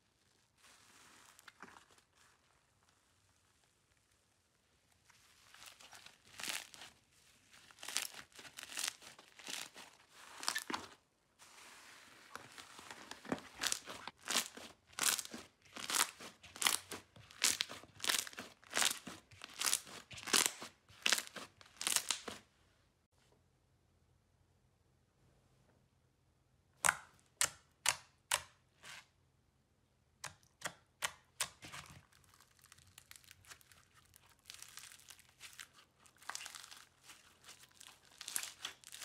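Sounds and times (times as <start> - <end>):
slime crackling and popping: 5.1 - 7.0, 7.6 - 10.8, 13.5 - 22.4, 32.0 - 39.0.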